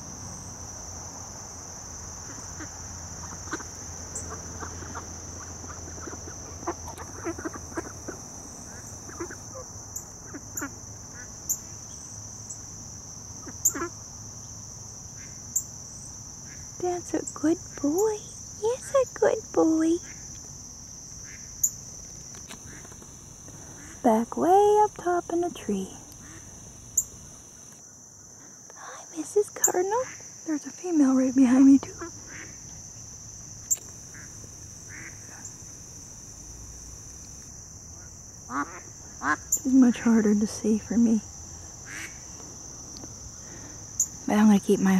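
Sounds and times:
crickets chirping: 0.0 - 44.9
insects trilling: 0.0 - 44.9
faint duck quacks: 4.3 - 9.6.

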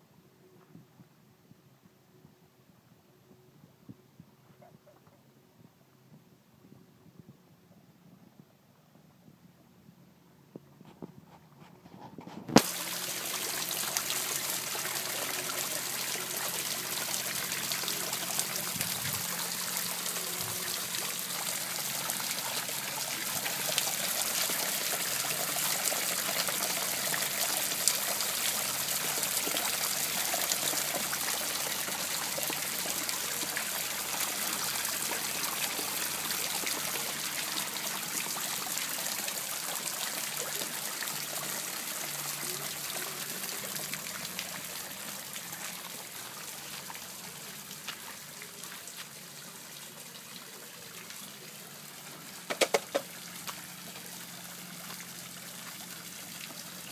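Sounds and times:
water splashing and trickling: 12.0 - 56.9
fountain spray pattering on water: 12.5 - 56.9.

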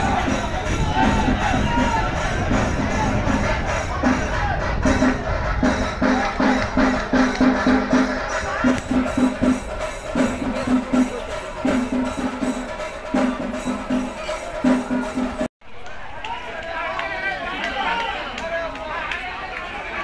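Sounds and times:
drums beating fast rhythm: 0.0 - 15.5
busy background din: 0.0 - 20.0.

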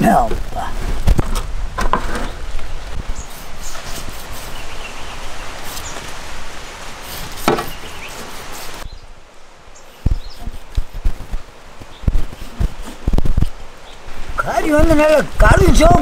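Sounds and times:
outdoor noise hiss: 0.0 - 16.0
low thumps: 10.0 - 13.6.

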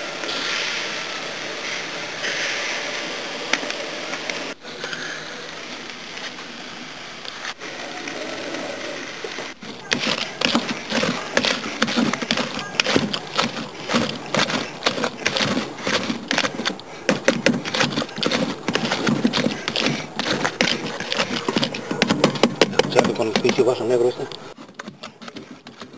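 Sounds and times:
spoon knocking plastic bucket: 9.9 - 23.7.

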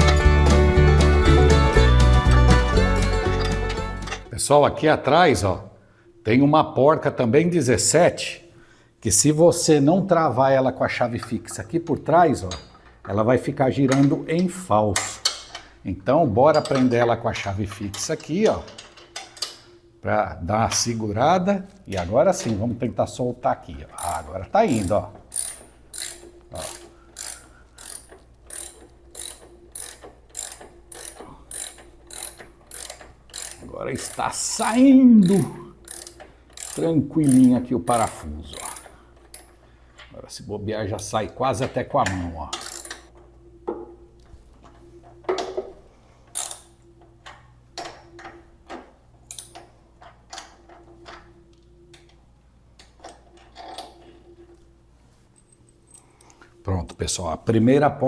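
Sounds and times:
ratcheting wrench clicking: 24.0 - 39.5, 42.5 - 43.1, 46.3 - 48.0.

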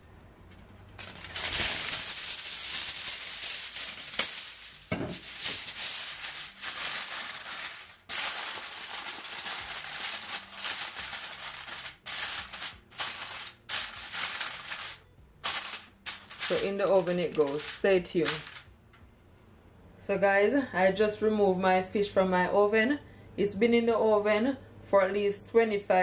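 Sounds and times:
aluminium foil crinkling: 0.9 - 18.7.

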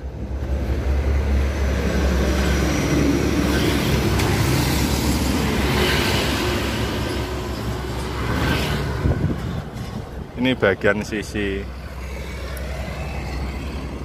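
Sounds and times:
road traffic rumble: 0.0 - 14.0
vehicle passing: 0.2 - 14.0
motorcycle passing: 11.2 - 14.0.

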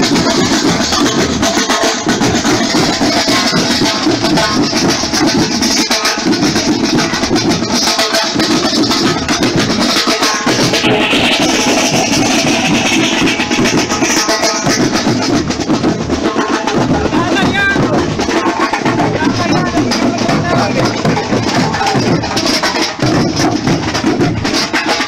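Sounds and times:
marching snare drums: 0.0 - 25.0.

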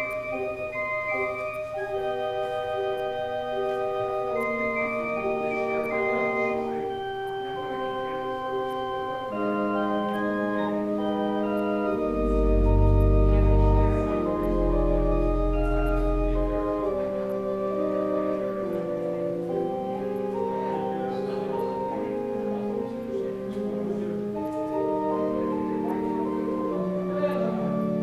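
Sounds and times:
deep organ bass pedal notes: 0.0 - 28.0
organ playing sustained chords: 0.0 - 28.0.

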